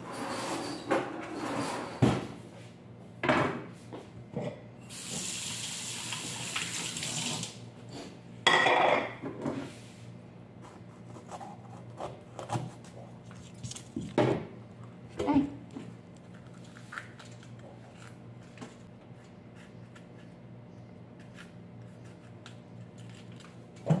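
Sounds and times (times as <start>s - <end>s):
kitchen tap running: 4.9s - 7.6s.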